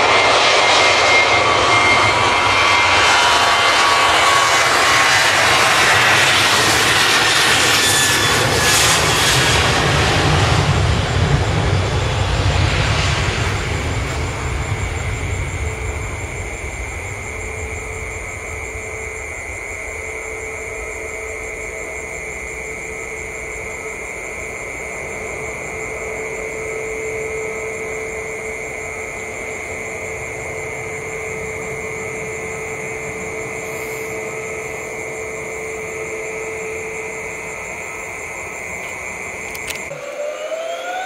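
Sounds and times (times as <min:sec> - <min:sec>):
distant jet engines whining: 0:00.0 - 0:41.0.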